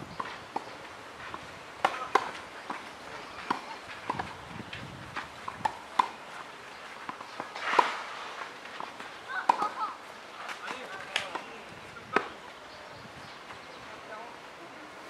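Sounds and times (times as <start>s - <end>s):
tennis ball bouncing on clay: 0.1s - 6.4s, 7.0s - 8.1s, 8.7s - 9.8s, 10.5s - 12.4s
racket hitting tennis ball: 1.8s - 2.8s, 3.4s - 4.4s, 5.2s - 6.3s, 7.1s - 9.8s.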